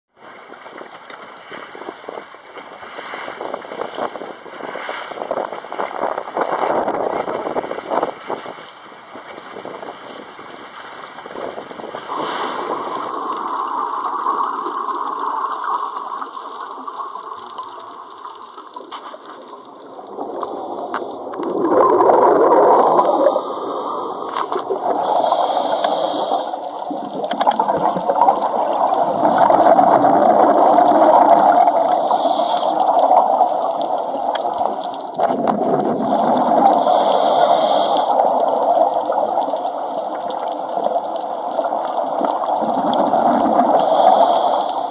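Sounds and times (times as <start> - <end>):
underwater water gurgling: 0.2 - 44.9
divers' exhaled bubbles: 11.2 - 44.9.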